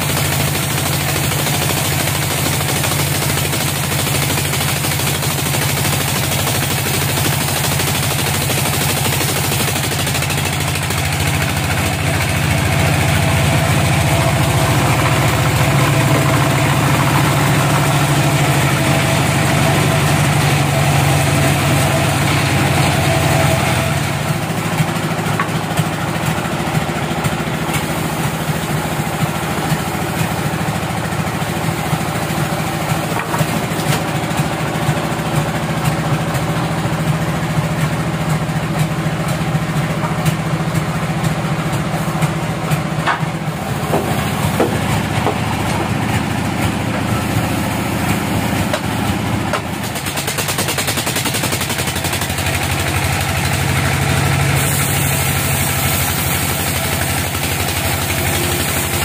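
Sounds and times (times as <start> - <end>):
band saw cutting log: 0.0 - 59.0
saw machinery running: 0.0 - 59.0
log knocking and clattering: 25.3 - 25.9, 33.1 - 34.1, 42.9 - 47.2, 48.6 - 49.7.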